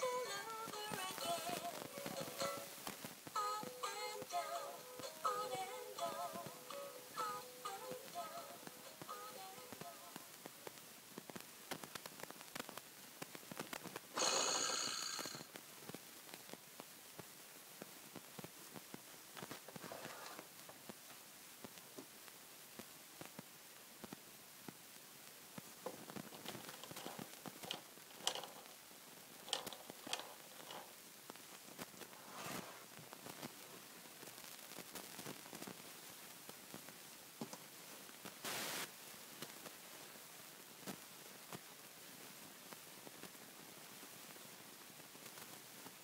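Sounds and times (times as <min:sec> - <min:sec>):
toy spinner clicking and rattling: 0:26.5 - 0:28.7, 0:29.4 - 0:30.9.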